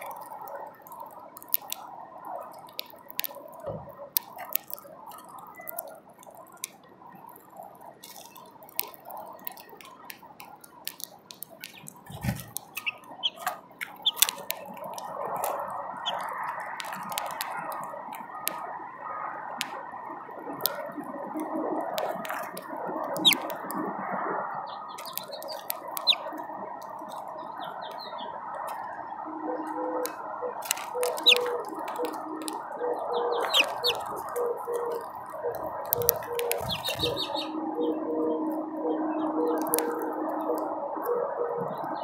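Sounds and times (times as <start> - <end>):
beaks cracking seed: 0.0 - 18.6, 21.8 - 23.8, 24.9 - 28.9, 30.0 - 32.7, 33.3 - 37.5, 39.5 - 40.7
low two-tone hum: 0.0 - 42.0
steady background hum: 0.0 - 42.0
bird chirps: 10.8 - 17.7, 22.0 - 23.7, 24.5 - 42.0.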